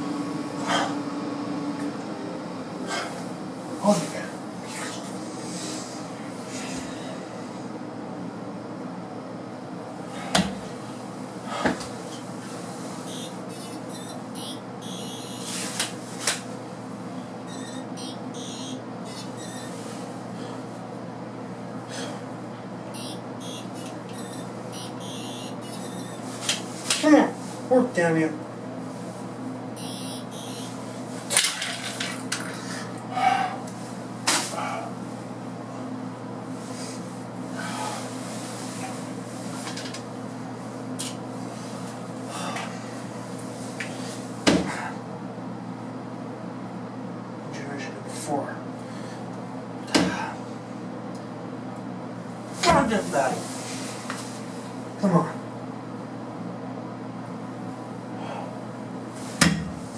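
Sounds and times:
steady low hum: 0:00.0 - 0:59.9
short squeak: 0:17.5 - 0:19.8, 0:23.0 - 0:26.2.

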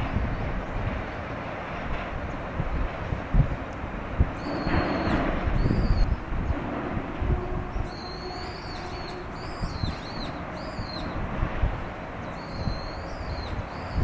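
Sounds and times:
low outdoor rumble: 0:00.0 - 0:14.0
bird calling: 0:04.4 - 0:06.2, 0:07.7 - 0:11.2, 0:12.2 - 0:14.0.

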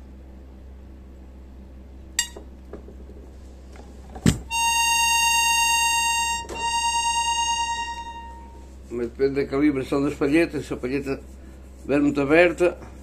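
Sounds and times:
metal ping: 0:02.2 - 0:02.5
accordion reed note: 0:04.5 - 0:08.7.

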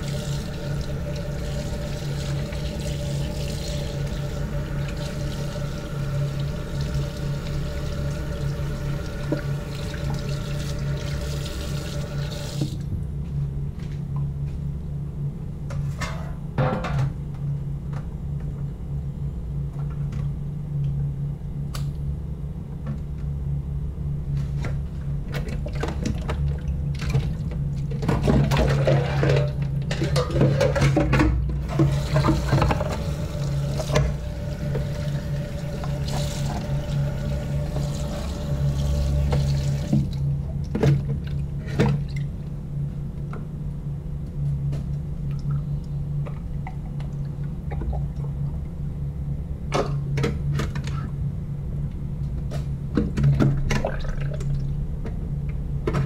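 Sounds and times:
tap water running into sink: 0:00.0 - 0:12.8, 0:31.6 - 0:40.2
steady low hum: 0:00.0 - 0:56.0
splashing and clatter of rinsing: 0:25.3 - 0:42.3, 0:53.0 - 0:54.7.

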